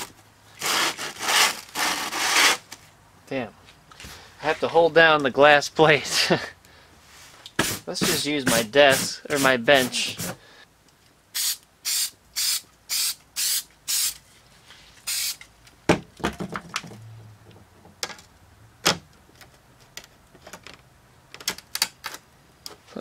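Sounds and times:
aerosol can spraying: 11.4 - 14.2, 15.0 - 15.4.

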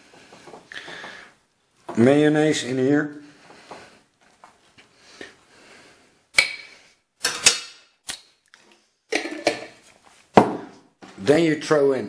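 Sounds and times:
spoon and containers clacking: 6.4 - 7.8, 9.1 - 9.8.

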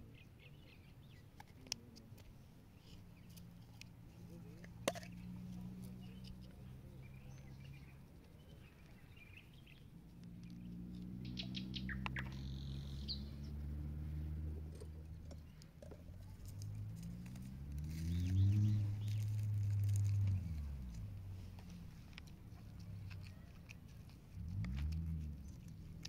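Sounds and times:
birds chirping: 2.8 - 17.2, 18.0 - 20.7.

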